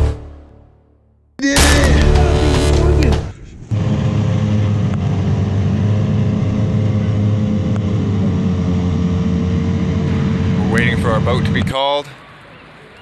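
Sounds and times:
outboard motors idling: 3.7s - 13.0s.

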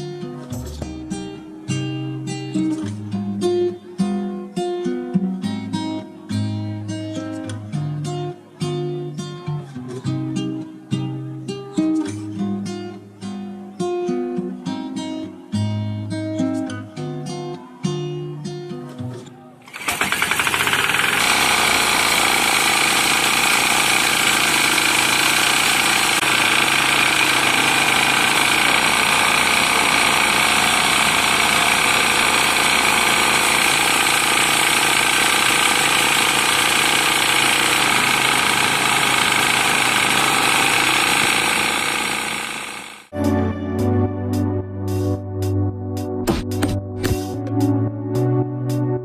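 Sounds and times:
chainsaw cutting through log: 19.7s - 43.1s.

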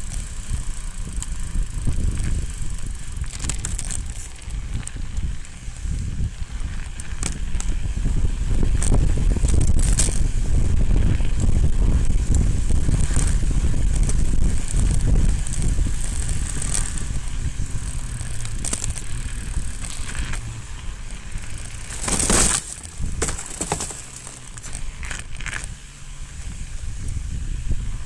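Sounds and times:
crunches and rattles: 0.0s - 7.8s, 11.1s - 25.7s
bike low rumble: 0.0s - 28.0s.

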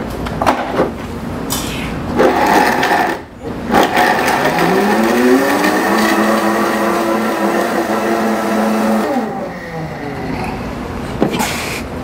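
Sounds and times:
blender blending thick mix: 2.2s - 10.3s
blender motor whine: 2.2s - 10.3s.

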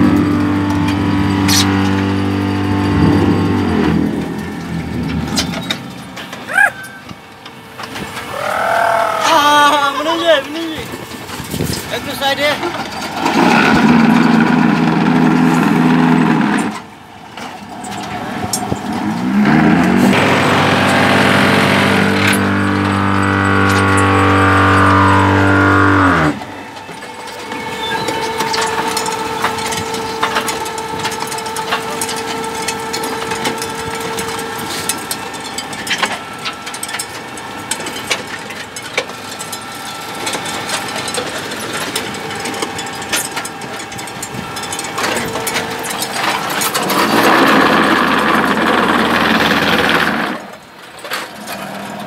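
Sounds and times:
concrete mixer humming: 0.0s - 52.0s
machine whine: 0.0s - 52.0s
rattles and knocks: 2.8s - 6.5s, 10.9s - 52.0s
loud rushing noise: 18.2s - 26.5s.

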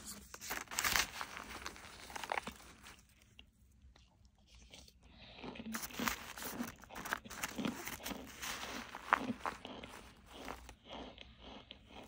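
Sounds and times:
crisp crunches of chewing: 0.0s - 12.0s.

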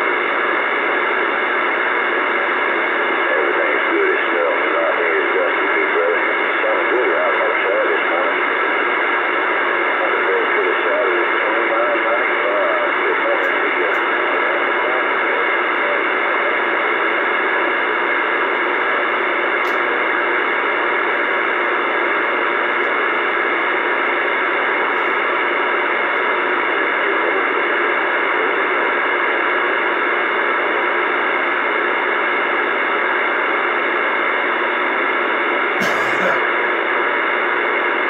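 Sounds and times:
radio static hiss: 0.0s - 38.0s.

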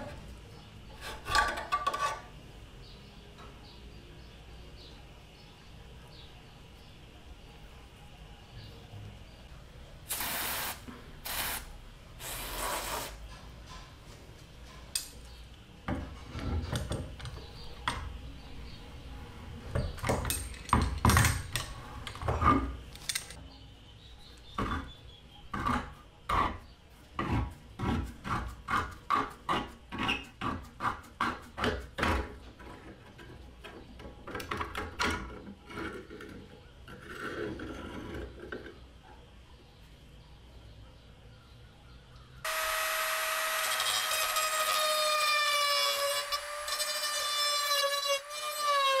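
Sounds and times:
hand scraping rusty steel: 1.0s - 2.4s.

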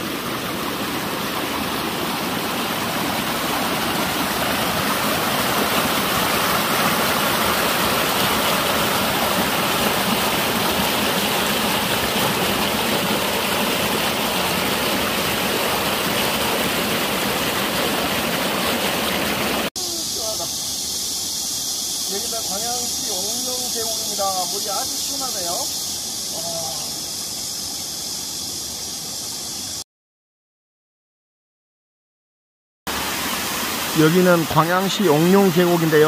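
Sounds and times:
stream rushing over rocks: 0.0s - 19.8s, 32.9s - 36.0s.

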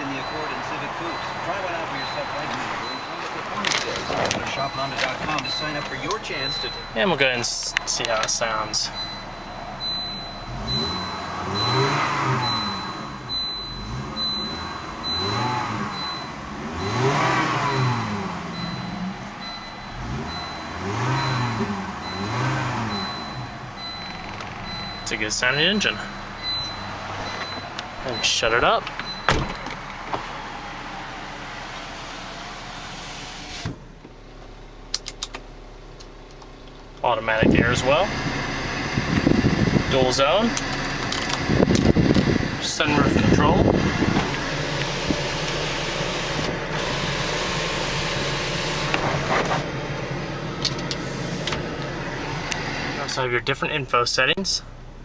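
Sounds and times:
car engine revving: 0.0s - 34.0s, 34.6s - 53.6s
power window motor running: 43.6s - 53.0s.

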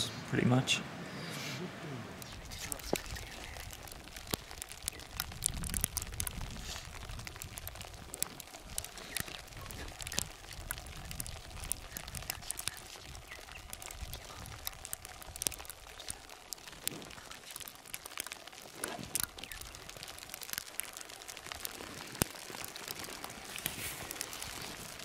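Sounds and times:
crackling ticks: 2.2s - 25.0s
gusty wind on microphone: 2.4s - 8.8s, 9.4s - 15.6s.

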